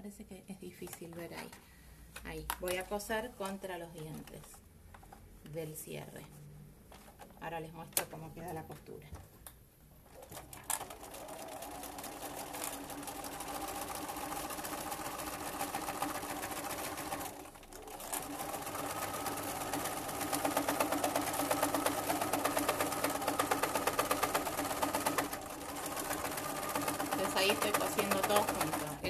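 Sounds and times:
sewing machine running: 10.1s - 29.0s.

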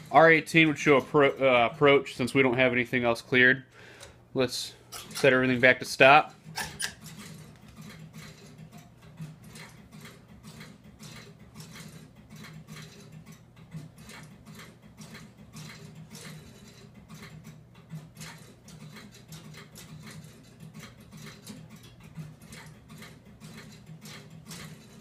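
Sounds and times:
low electrical hum: 0.0s - 25.0s.

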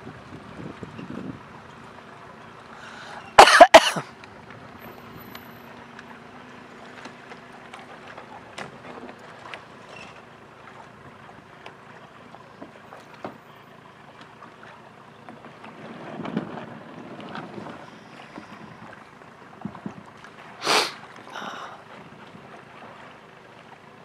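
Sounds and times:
light wind on microphone: 0.0s - 1.6s.

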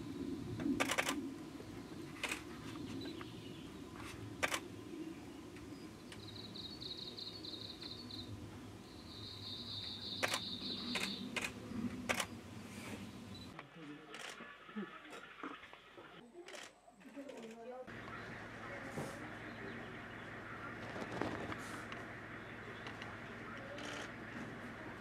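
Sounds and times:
steady low rumble: 0.0s - 13.5s, 17.9s - 25.0s
sharp clicks: 0.8s - 1.2s, 4.4s - 4.6s, 10.2s - 12.3s.

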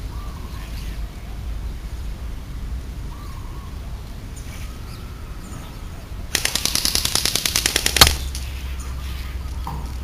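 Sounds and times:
airsoft gun full-auto burst: 6.3s - 8.4s.

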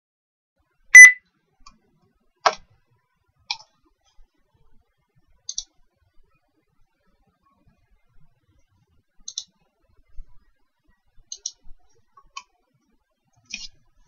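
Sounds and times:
computer mouse clicking: 5.5s - 5.7s, 9.2s - 9.5s, 11.3s - 11.7s, 13.5s - 13.8s.

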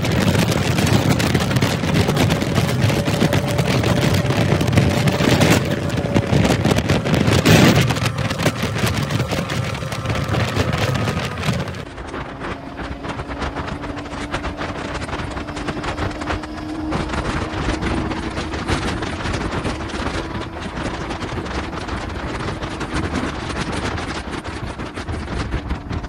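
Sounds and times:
motorcycle engine hum: 0.0s - 26.0s
wind buffeting microphone: 0.0s - 26.0s.

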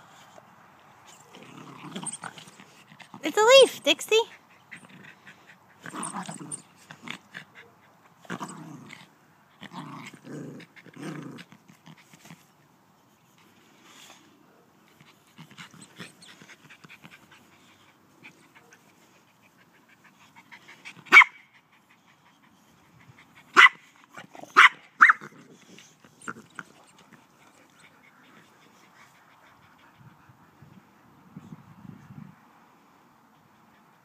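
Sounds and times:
dog barking: 23.6s - 23.8s, 24.6s - 25.2s.

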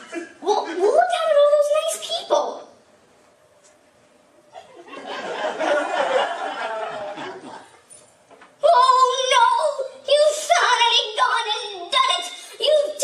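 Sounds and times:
audience laughing: 4.5s - 7.8s.

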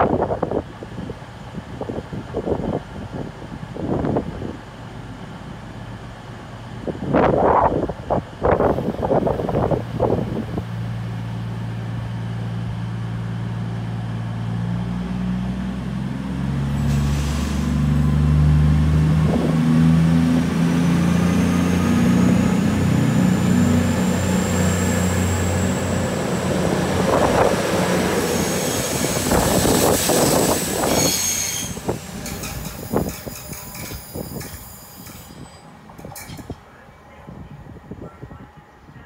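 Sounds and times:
train diesel engines revving: 0.6s - 39.0s
train wheel squeal and clatter: 27.4s - 36.6s.

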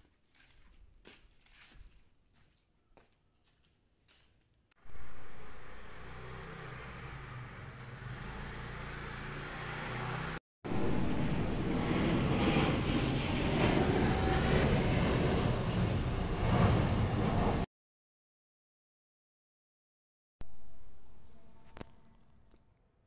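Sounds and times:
airplane flying overhead: 4.8s - 17.7s.

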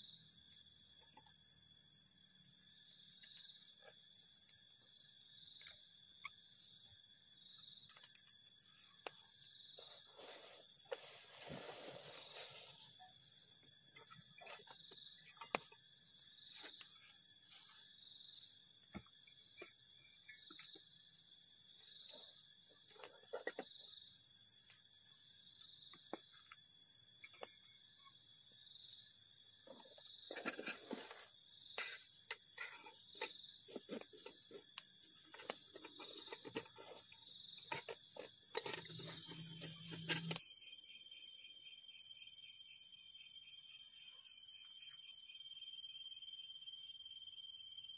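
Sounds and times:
night insects chorus: 0.0s - 47.9s
clicks and rustles in a tent: 9.8s - 13.1s.

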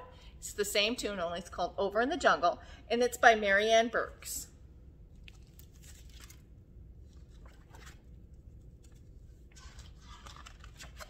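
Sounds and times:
book pages rustling and crinkling: 5.2s - 6.4s, 7.1s - 11.0s.

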